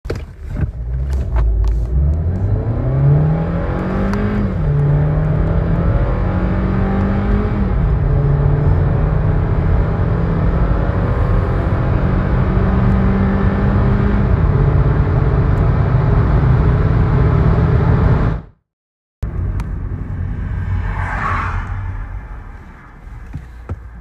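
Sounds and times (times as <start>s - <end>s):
car engine at full throttle: 0.2s - 18.6s.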